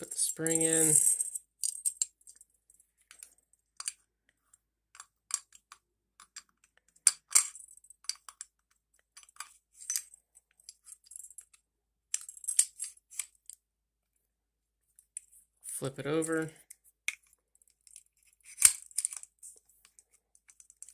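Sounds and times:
metal gun parts clicking: 0:00.4 - 0:02.4, 0:05.0 - 0:08.5, 0:17.1 - 0:20.9.

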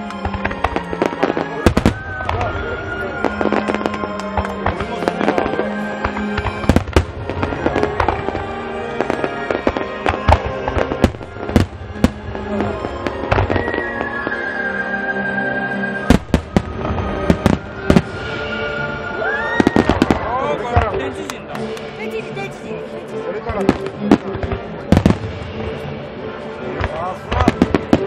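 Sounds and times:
fireworks bangs: 0:00.0 - 0:14.5, 0:16.0 - 0:22.2, 0:23.4 - 0:25.9, 0:26.7 - 0:28.0
music: 0:00.0 - 0:28.0.

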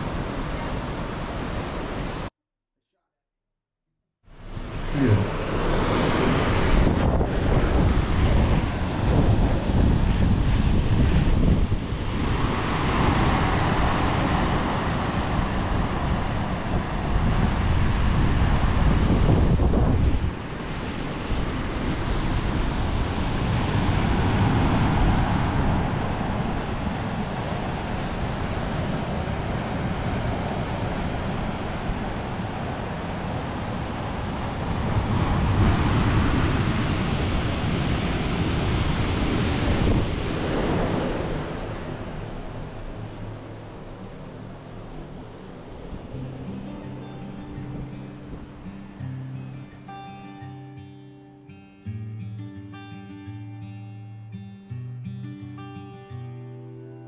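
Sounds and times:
surf breaking on rocky shore: 0:04.4 - 0:49.0
wind buffeting microphone: 0:04.4 - 0:49.0.

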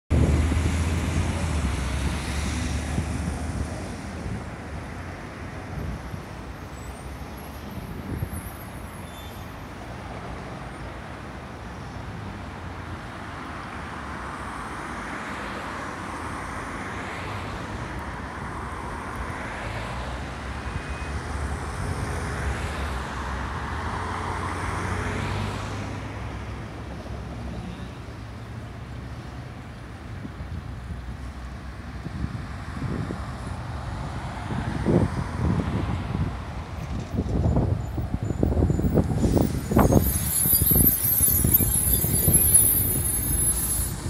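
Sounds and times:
low rumble of engines: 0:00.1 - 0:14.4, 0:16.0 - 0:44.0
vehicles passing with tyre hiss: 0:00.1 - 0:44.0.

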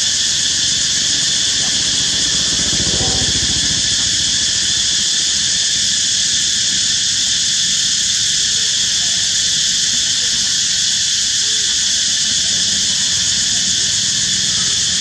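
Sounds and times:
high-pitched insect chorus: 0:00.0 - 0:15.0
vehicle engine passing: 0:00.3 - 0:05.4.

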